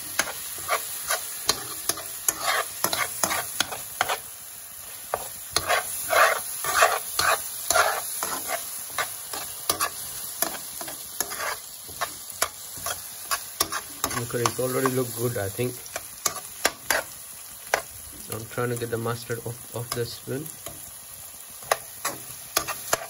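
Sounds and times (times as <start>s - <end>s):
frying sizzle: 0.0s - 23.0s
spoon scraping a frying pan: 0.1s - 4.3s, 5.1s - 17.9s, 21.6s - 23.0s.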